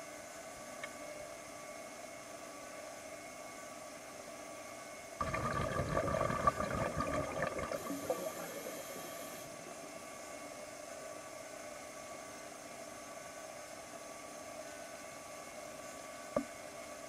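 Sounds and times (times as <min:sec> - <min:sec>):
underwater air bubbling: 0:05.2 - 0:09.4
steady hiss: 0:07.6 - 0:09.5.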